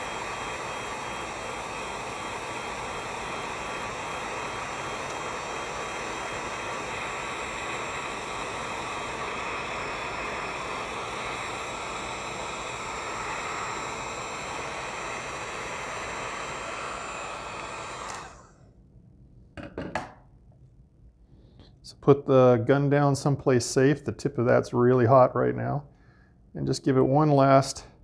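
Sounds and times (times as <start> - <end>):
heat gun blowing air: 0.0 - 18.7.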